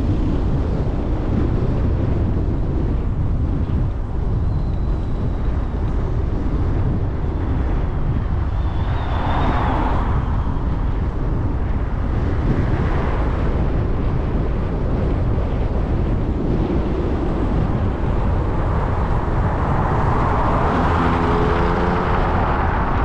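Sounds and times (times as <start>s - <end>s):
wind and road rumble: 0.0s - 23.0s
car passing: 8.5s - 11.1s, 17.8s - 23.0s.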